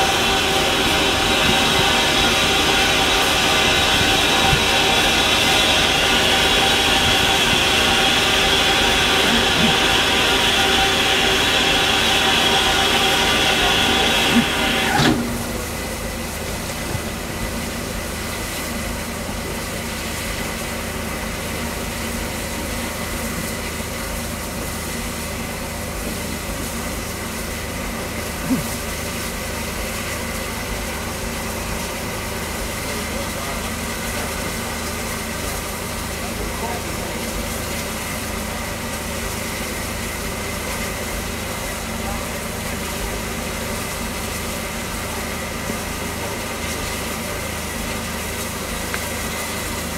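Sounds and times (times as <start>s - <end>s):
locomotive hissing and humming: 0.0s - 49.9s
loud steam hiss: 0.0s - 49.9s.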